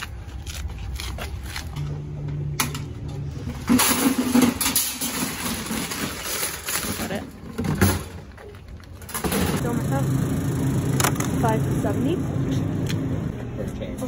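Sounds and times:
shopping carts rattling: 3.5 - 12.2.

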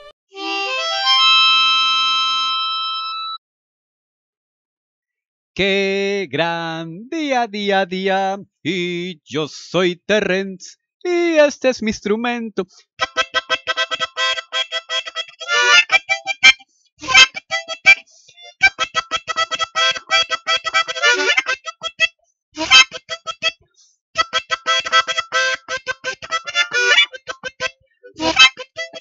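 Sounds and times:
harmonica ringtone melody: 0.0 - 3.4, 13.0 - 23.6, 24.2 - 29.0.

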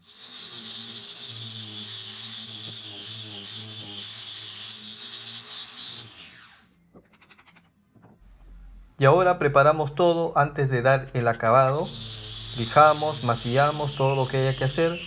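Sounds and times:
electric disc sander running: 0.0 - 6.7, 11.6 - 15.0.

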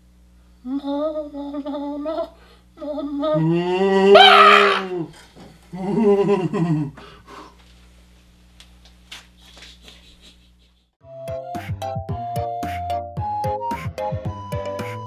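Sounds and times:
man laughing: 5.7 - 7.0, 9.5 - 11.0.

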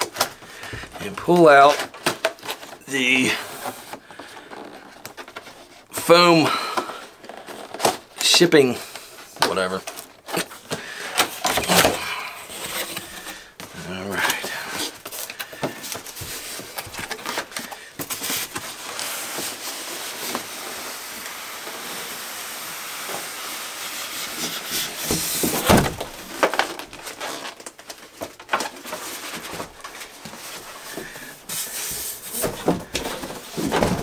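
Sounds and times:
cardboard and foam scraping: 11.2 - 34.0.

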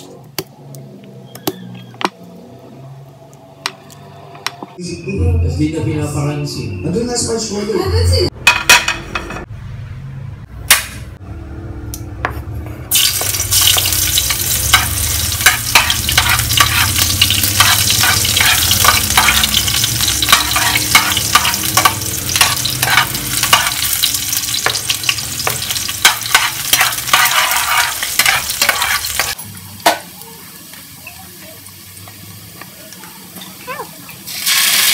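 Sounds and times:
garlic and onion sizzling in oil: 12.9 - 34.9
metal spatula scraping pan: 13.8 - 29.4.

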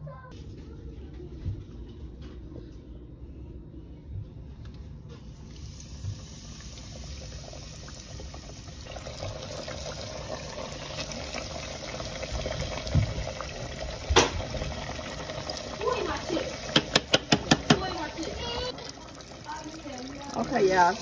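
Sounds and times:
oil sizzling and bubbling: 5.1 - 21.0.

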